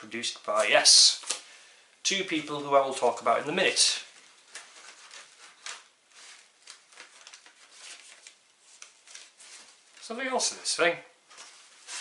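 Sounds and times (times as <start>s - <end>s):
paper sleeve rustling: 2.5s - 10.6s, 11.2s - 12.0s.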